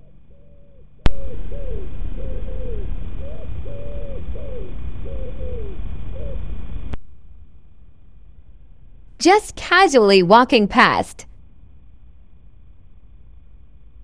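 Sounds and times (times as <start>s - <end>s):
pigeon cooing: 0.3s - 6.5s.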